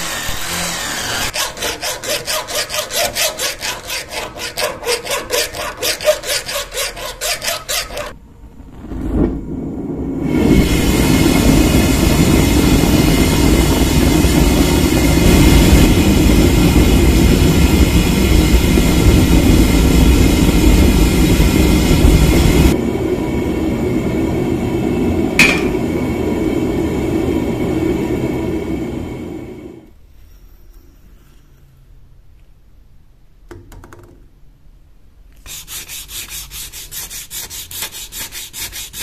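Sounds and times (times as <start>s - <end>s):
gas forge burner roaring: 1.3s - 30.0s
sharp metallic clink: 25.4s - 25.9s.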